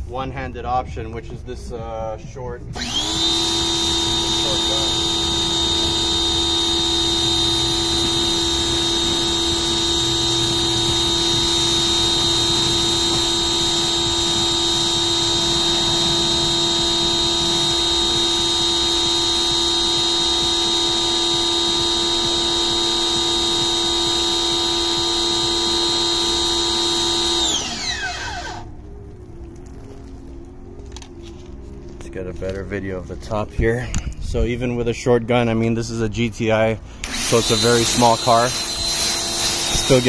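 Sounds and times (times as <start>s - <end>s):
motor winding down: 2.7s - 28.7s, 37.0s - 40.0s
pressure washer motor whining: 2.7s - 28.7s, 36.9s - 40.0s
water spraying: 37.1s - 40.0s.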